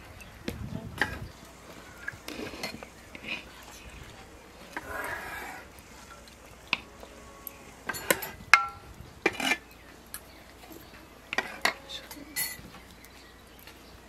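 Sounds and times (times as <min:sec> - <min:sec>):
metal dishes and utensils clinking: 0:07.8 - 0:12.8.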